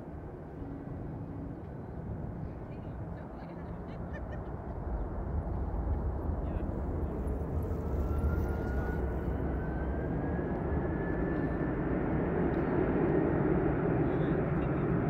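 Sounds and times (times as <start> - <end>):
jet engine rumble: 0.0 - 15.0
thin rising whine: 6.6 - 13.2.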